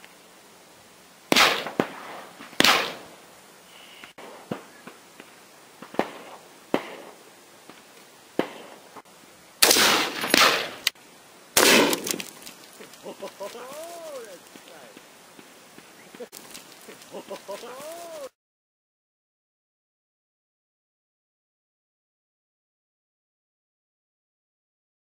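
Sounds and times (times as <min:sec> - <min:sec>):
fainter gunshot cracks: 0:01.3 - 0:03.1, 0:09.6 - 0:10.9, 0:11.6 - 0:12.2
rifle shots echoing: 0:01.3 - 0:03.1, 0:09.6 - 0:10.9, 0:11.6 - 0:12.2.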